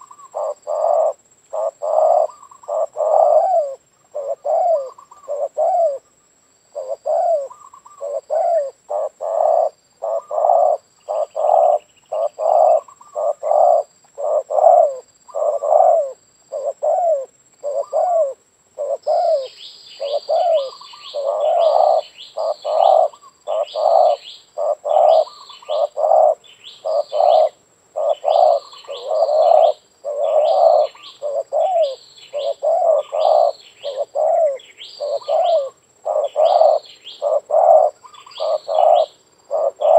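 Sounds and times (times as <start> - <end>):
doves cooing: 0.0 - 39.9.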